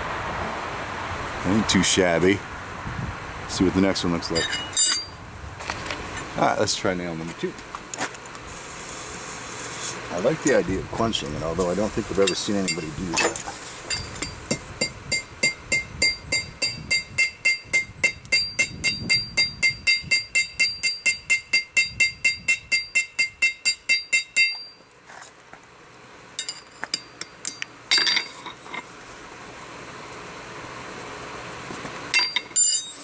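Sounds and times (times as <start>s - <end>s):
hammer blows on hot metal: 11.6s - 24.8s
light metal clinks: 12.2s - 24.8s, 26.4s - 28.8s.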